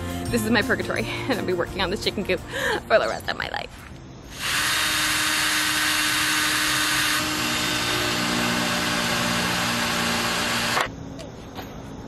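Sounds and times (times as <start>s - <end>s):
motor whirring with hiss and hum: 4.3s - 10.9s.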